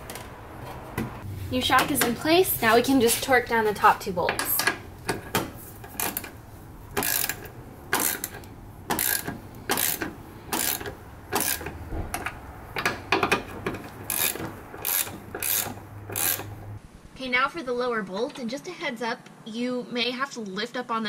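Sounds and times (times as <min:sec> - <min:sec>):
hand ratchet clicking: 0:04.4 - 0:16.8.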